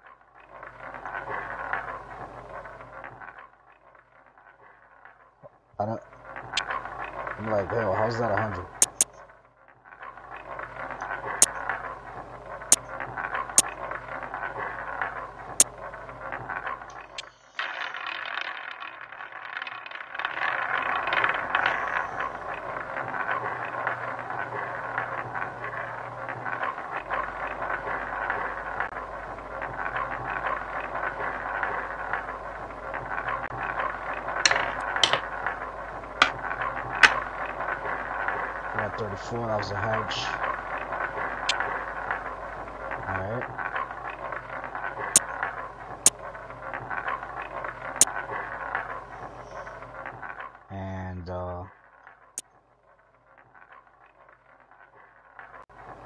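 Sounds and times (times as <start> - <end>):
roulette ball rattling whir: 0.0 - 50.8, 51.4 - 56.0
chips clicking: 8.8 - 9.1, 33.5 - 38.3.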